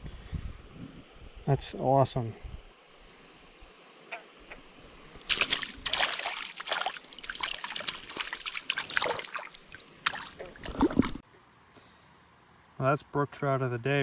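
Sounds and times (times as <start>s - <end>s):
water sloshing and splashing: 5.1s - 11.2s.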